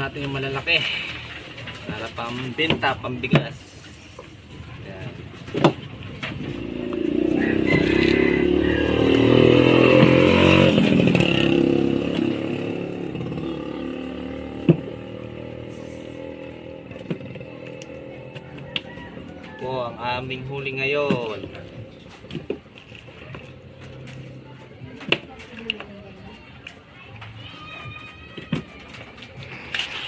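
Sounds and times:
small engine passing by: 0:06.4 - 0:19.3.

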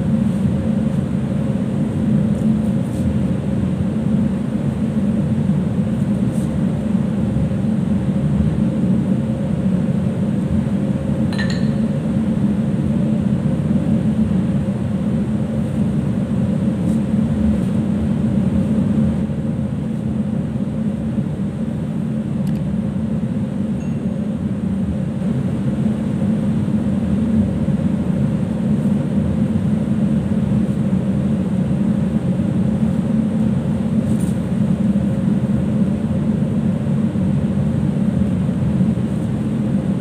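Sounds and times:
constant hum tone: 0:00.0 - 0:40.0
ship machinery drone: 0:00.0 - 0:40.0
light clink: 0:11.3 - 0:12.0, 0:23.8 - 0:24.1.

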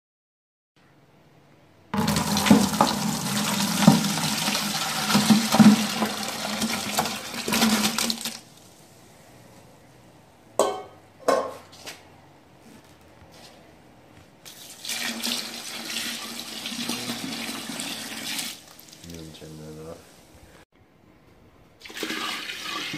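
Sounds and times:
brine splashing into bucket: 0:02.0 - 0:08.7, 0:14.5 - 0:19.2, 0:21.8 - 0:22.9.

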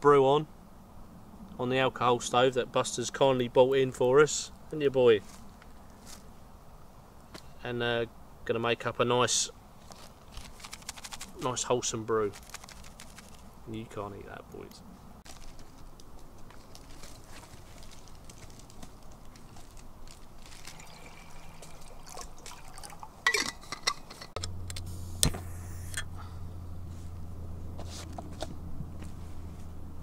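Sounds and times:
low hum: 0:14.7 - 0:30.0
water pouring into metal cup: 0:20.4 - 0:23.4.

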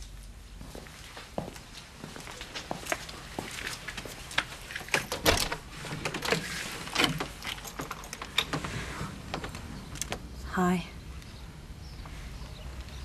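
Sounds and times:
door lock and latch clicking: 0:04.8 - 0:08.7.

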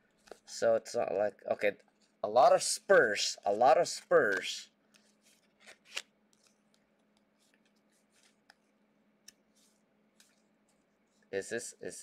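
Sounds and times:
trading cards rustling and clicking: 0:02.9 - 0:08.7.

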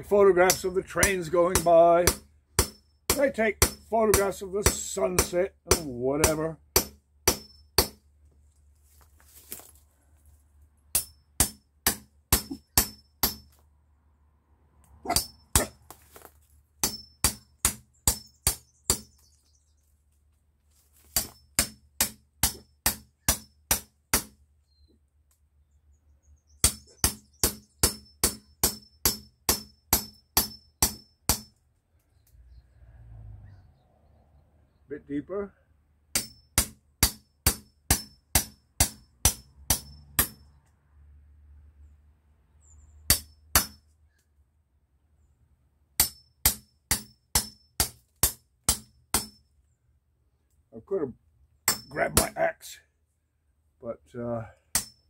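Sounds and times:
hammer striking steel blade: 0:15.1 - 0:15.8, 0:36.2 - 0:40.4, 0:51.7 - 0:52.3.

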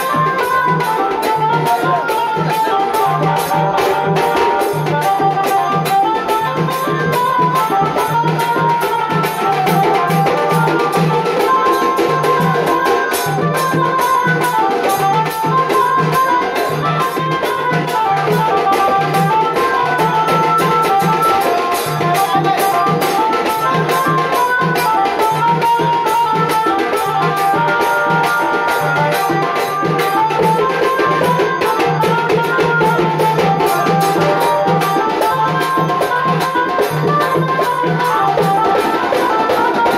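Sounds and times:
folk music over sound system: 0:00.0 - 0:12.1.

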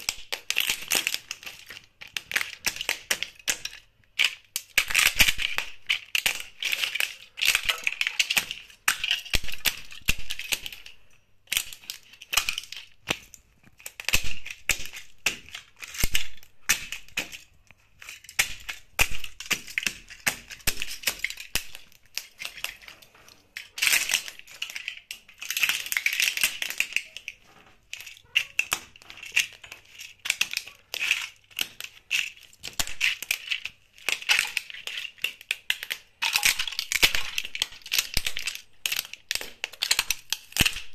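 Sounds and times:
plastic cracking under footsteps: 0:00.0 - 0:40.9.

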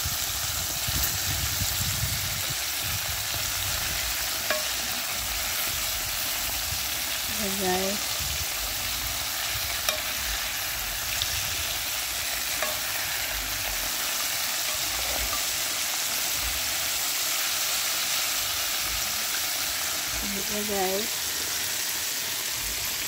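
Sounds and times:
oil sizzling: 0:00.0 - 0:23.0
fork tapping pot: 0:04.5 - 0:04.8, 0:09.8 - 0:10.2, 0:12.6 - 0:13.0.

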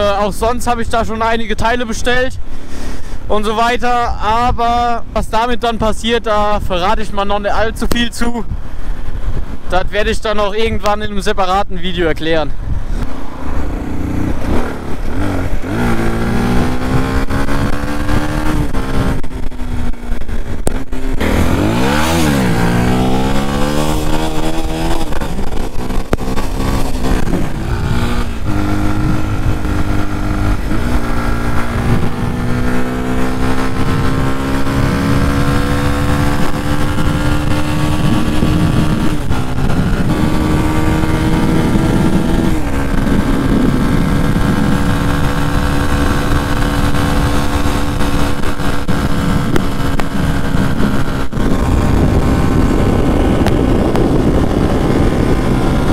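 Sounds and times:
wind on microphone: 0:00.0 - 0:55.9
motorcycle engine revving: 0:13.0 - 0:55.9.

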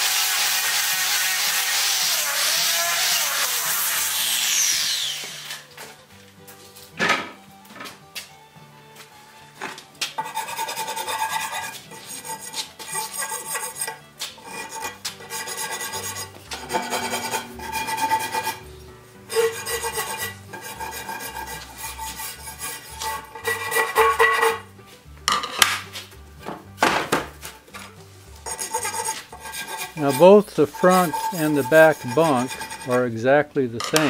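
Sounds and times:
hand rasp on wood: 0:10.2 - 0:18.6, 0:19.3 - 0:24.6, 0:28.5 - 0:33.1.

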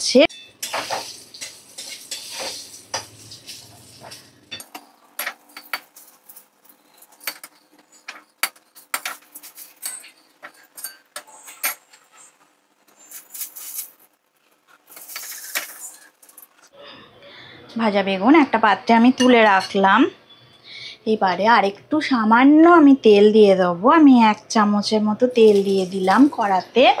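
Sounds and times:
utensil clinking against wok: 0:00.3 - 0:12.0.

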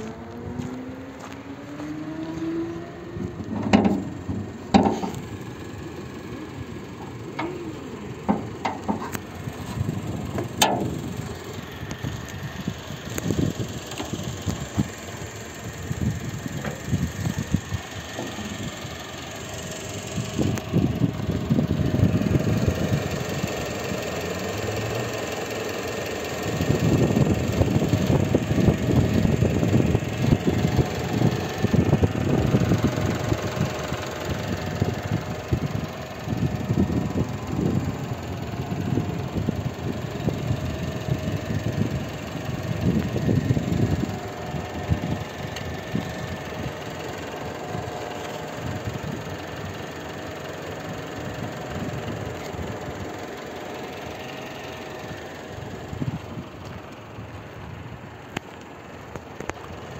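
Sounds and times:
car engine idling: 0:00.0 - 0:59.9
wind buffeting microphone: 0:08.0 - 0:23.7, 0:26.5 - 0:49.8, 0:55.5 - 0:58.1.

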